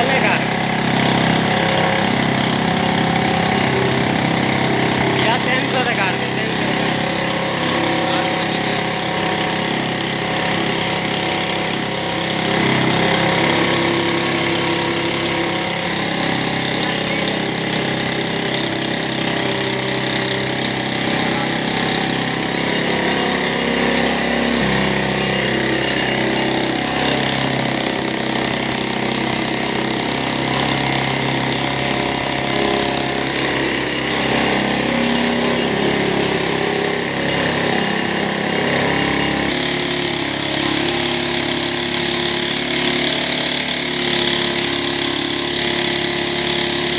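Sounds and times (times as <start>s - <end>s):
motorcycle engine running: 0.0s - 46.9s
piston air compressor pumping: 0.0s - 46.9s.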